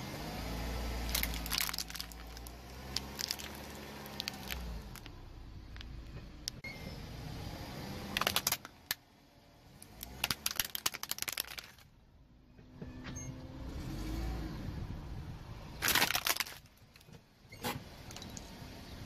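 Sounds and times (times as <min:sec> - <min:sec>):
car rolling on asphalt: 0:00.1 - 0:06.6, 0:09.6 - 0:11.9
plastic toy cracking under tire: 0:01.1 - 0:06.0, 0:08.1 - 0:09.0, 0:09.8 - 0:11.9, 0:15.8 - 0:17.1.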